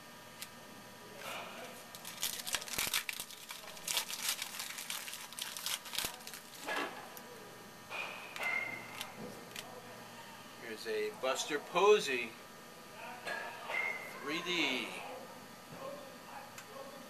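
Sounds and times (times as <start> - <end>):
wrapper crinkling and tearing: 1.9 - 6.8, 8.9 - 9.7.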